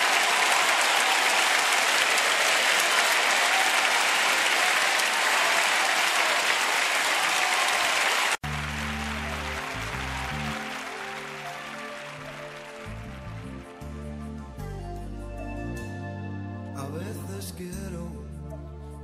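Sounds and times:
audience applauding: 0:00.0 - 0:13.9
song intro with low held notes: 0:08.4 - 0:19.0.

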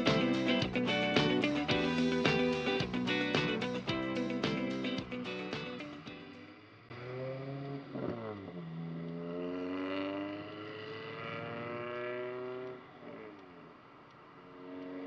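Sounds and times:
scooter engine pulling away: 0:06.4 - 0:13.4.

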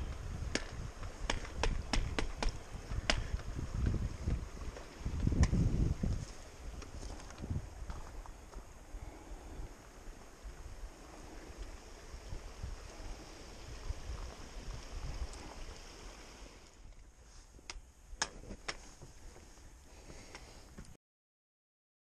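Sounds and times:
trekking poles clicking on rock: 0:00.0 - 0:08.7, 0:14.1 - 0:19.2
wind rumbling on microphone: 0:00.0 - 0:20.7.

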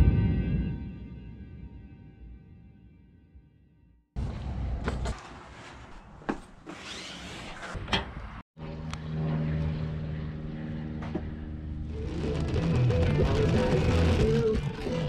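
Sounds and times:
music: 0:00.0 - 0:04.0, 0:12.0 - 0:15.0.

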